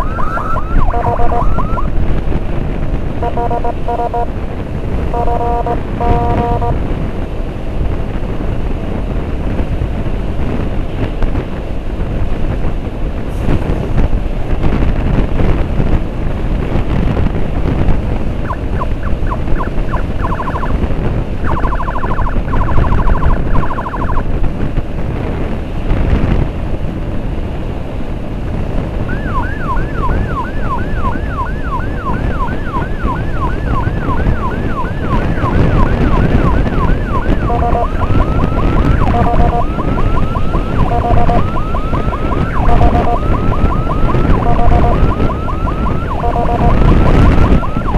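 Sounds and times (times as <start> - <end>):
emergency siren wailing: 0.0 - 2.0, 3.2 - 4.4, 5.0 - 7.0, 18.4 - 24.4, 29.0 - 47.9
motorcycle road noise: 0.0 - 47.9
wind buffeting microphone: 0.0 - 47.9.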